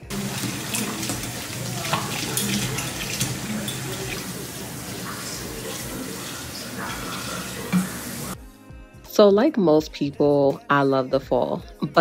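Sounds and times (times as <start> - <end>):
dishes being rinsed: 0.0 - 8.4
faucet running into sink: 0.0 - 8.4.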